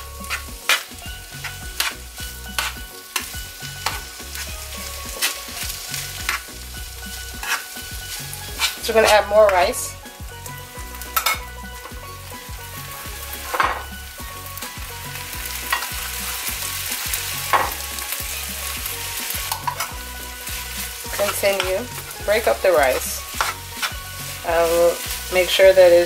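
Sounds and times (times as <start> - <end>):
spatula scraping a pan: 0.0 - 9.7, 15.6 - 26.0
rice sizzling in a frying pan: 0.0 - 26.0.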